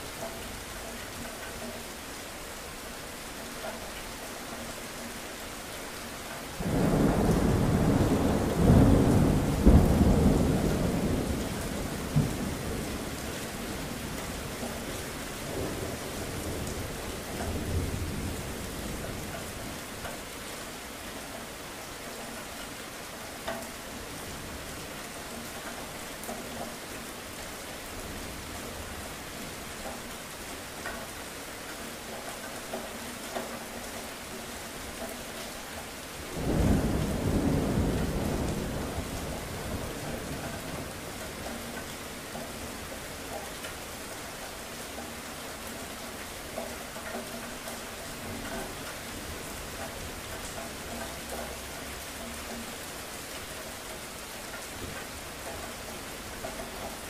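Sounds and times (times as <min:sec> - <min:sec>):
steady rain: 0:00.0 - 0:57.0
thunder rumbling: 0:06.6 - 0:14.6, 0:36.2 - 0:41.4.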